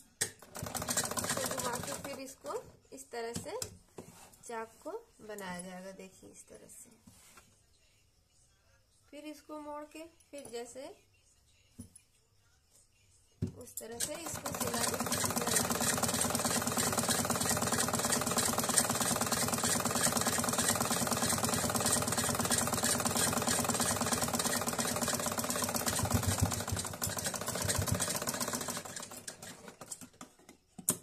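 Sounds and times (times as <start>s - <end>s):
sewing machine running: 0.4s - 2.4s, 14.0s - 30.0s.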